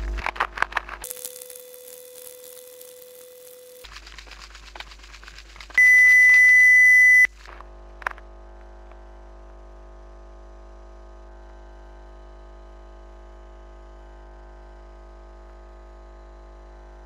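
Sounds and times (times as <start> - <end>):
toothbrush scrubbing teeth: 3.8 - 5.8
loud steady electronic beep: 5.8 - 7.3.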